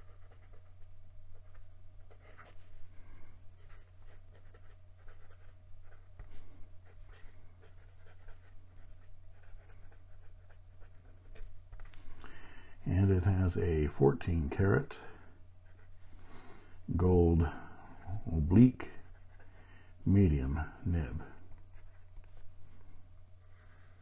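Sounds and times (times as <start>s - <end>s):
pen nib scratching on paper: 0.0s - 2.6s, 3.6s - 12.0s, 14.9s - 16.0s, 18.0s - 19.6s, 21.2s - 22.5s, 23.4s - 24.0s
steady low hum: 0.0s - 24.0s.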